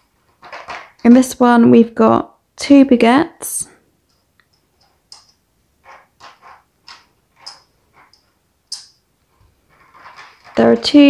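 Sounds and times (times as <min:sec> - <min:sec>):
plastic blister tray crinkling: 0:09.3 - 0:11.0.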